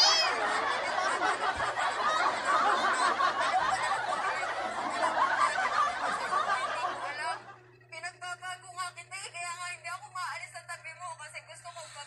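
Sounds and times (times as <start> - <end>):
children giggling: 0.0 - 7.9.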